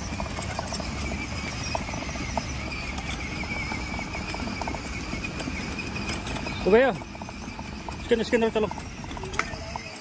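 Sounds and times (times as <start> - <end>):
plastic wheels rumbling on paving: 0.0 - 10.0
toy car motor whine: 0.0 - 10.0.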